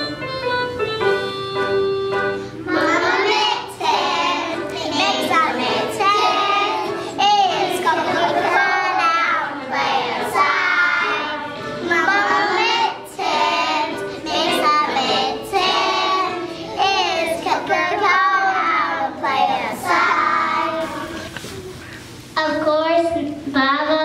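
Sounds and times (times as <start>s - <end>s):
young children singing: 2.6s - 21.5s.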